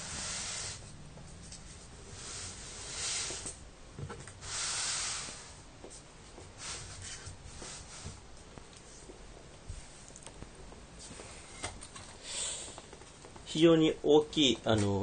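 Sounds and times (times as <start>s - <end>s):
cardboard scraping across mat: 0.0s - 3.6s, 6.6s - 8.2s
soft rustles: 0.0s - 4.4s, 5.2s - 13.7s.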